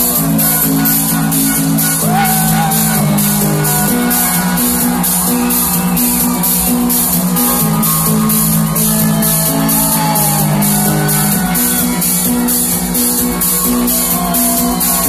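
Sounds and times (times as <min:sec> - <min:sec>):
techno music over sound system: 0:00.0 - 0:15.0.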